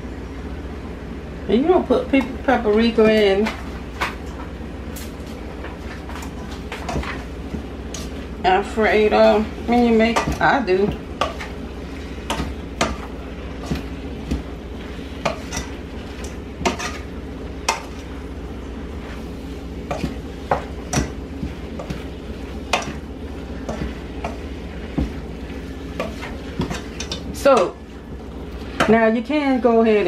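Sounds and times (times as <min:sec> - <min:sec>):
food sizzling: 0:02.3 - 0:30.0
wooden spoon scraping a pan: 0:05.2 - 0:18.1, 0:18.9 - 0:29.2.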